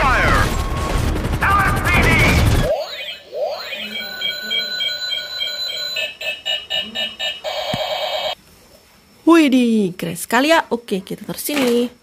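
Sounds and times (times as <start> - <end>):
warbling electronic tone: 0.4 - 8.3
electronic toy beeping: 2.7 - 8.4.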